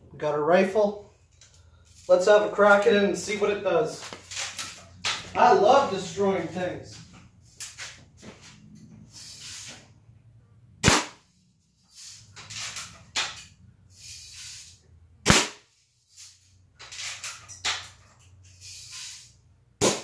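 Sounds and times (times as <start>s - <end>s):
bb rifle shots: 10.8s - 11.2s, 15.3s - 15.6s.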